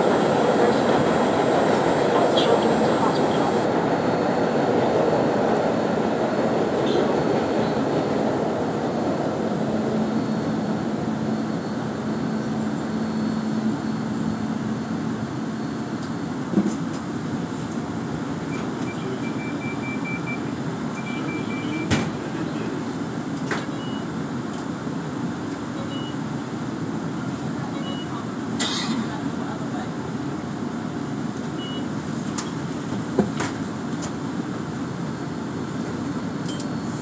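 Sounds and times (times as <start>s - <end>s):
rumble of wheels on rail: 0.0s - 37.0s
short high beeps: 18.5s - 20.4s, 21.0s - 21.9s.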